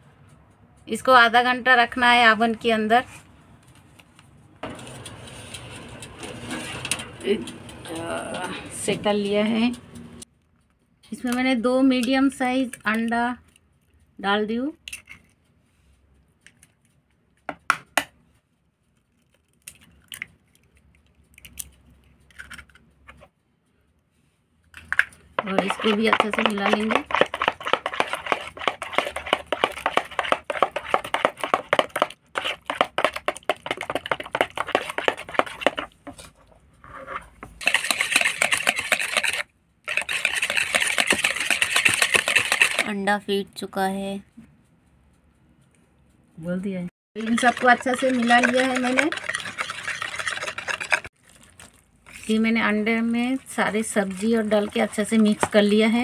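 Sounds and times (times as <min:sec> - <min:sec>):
eggshell crackling: 0:25.4 - 0:35.9, 0:37.6 - 0:42.9, 0:47.2 - 0:51.8.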